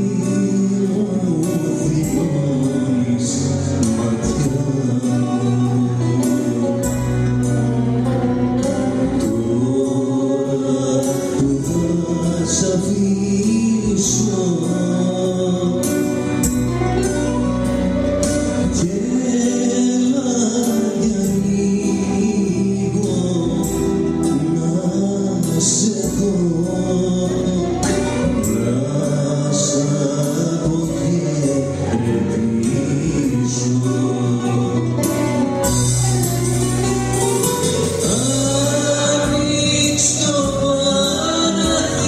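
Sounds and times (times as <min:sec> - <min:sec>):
keyboard: 0:00.0 - 0:42.0
man singing into a microphone: 0:00.0 - 0:42.0
plucked bouzouki: 0:31.8 - 0:42.0.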